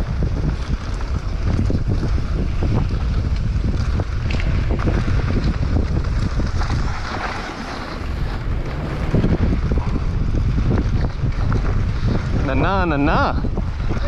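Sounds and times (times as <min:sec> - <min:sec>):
bike rattling over bumps: 0:00.0 - 0:14.0
deep rumble: 0:00.0 - 0:14.0
wind buffeting microphone: 0:00.0 - 0:14.0.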